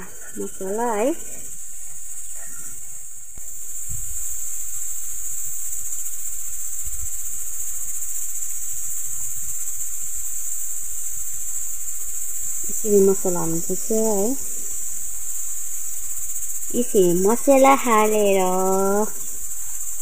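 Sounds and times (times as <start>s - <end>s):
crickets chirring: 0.0s - 20.0s.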